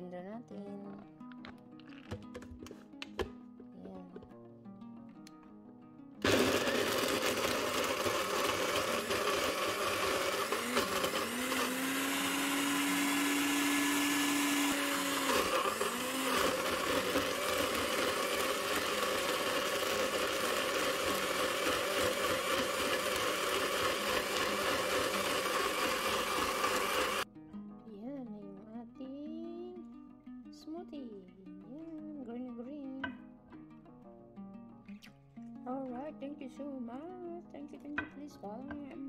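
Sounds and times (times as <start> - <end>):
blender motor whirring: 6.2 - 27.2.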